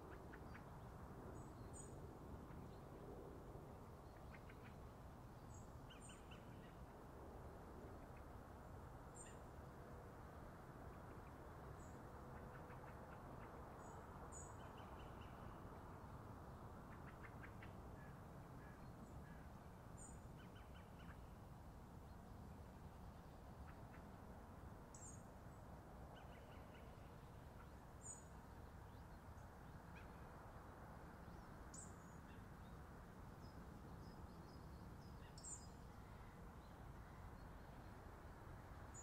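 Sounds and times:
low background hiss: 0:00.0 - 0:39.0.

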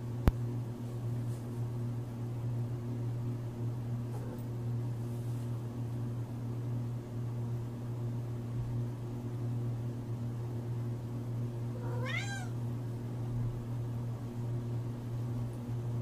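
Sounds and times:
steady low hum: 0:00.0 - 0:16.0
cat meowing: 0:11.8 - 0:12.6.

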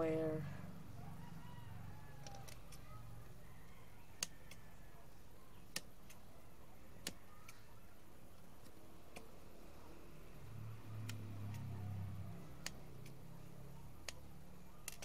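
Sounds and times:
scissors clicking: 0:02.2 - 0:02.9, 0:04.2 - 0:04.7, 0:11.0 - 0:15.0.

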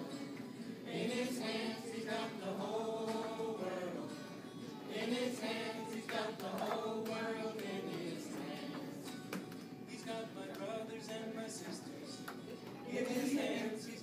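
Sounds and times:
girls singing together: 0:00.0 - 0:09.2.

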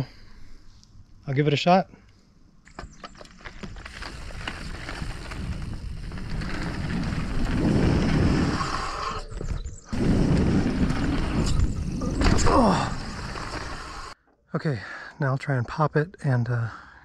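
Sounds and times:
bicycle clicks: 0:02.6 - 0:11.9
tyre and wind rumble: 0:02.9 - 0:14.2.

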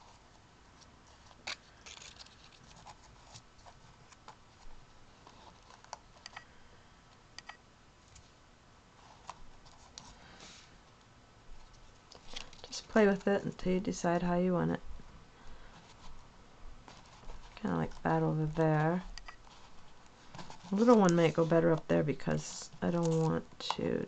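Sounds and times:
paper cutouts rustling: 0:00.7 - 0:06.2, 0:16.8 - 0:23.8.

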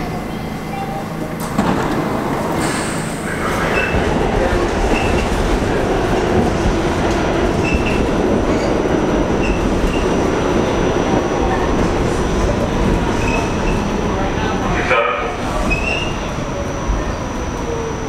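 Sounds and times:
subway car rumbling on track: 0:00.0 - 0:18.0
short high wheel squeaks: 0:15.7 - 0:16.2.

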